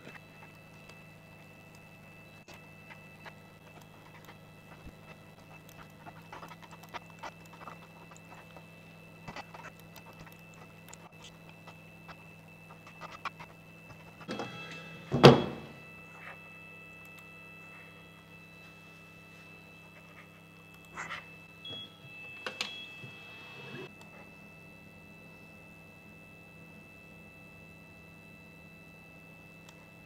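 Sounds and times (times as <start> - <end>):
electrical hum: 0.0 - 30.0
keyboard and mouse clicks: 5.6 - 8.6.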